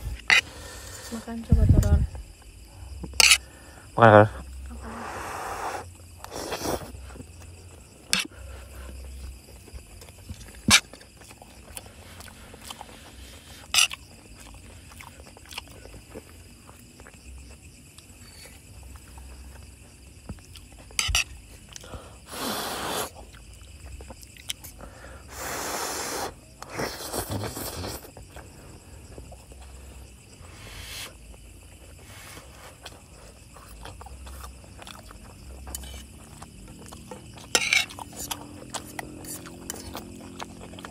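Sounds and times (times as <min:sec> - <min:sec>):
chewing: 0:05.8 - 0:22.2, 0:23.1 - 0:25.4, 0:26.6 - 0:40.9
cutlery scraping on plates: 0:37.5 - 0:38.1.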